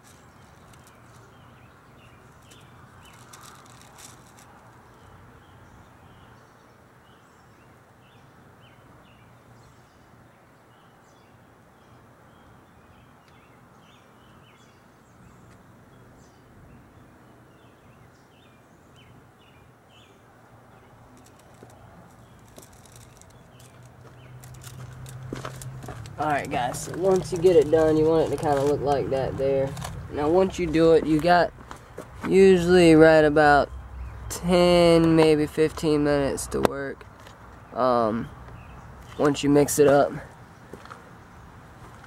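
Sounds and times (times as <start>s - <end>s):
bird chirping: 0.0s - 40.7s.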